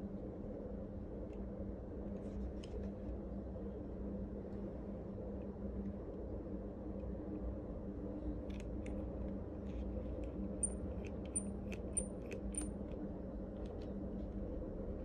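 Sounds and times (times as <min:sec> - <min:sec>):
small sharp metal clicks: 0:10.6 - 0:13.0.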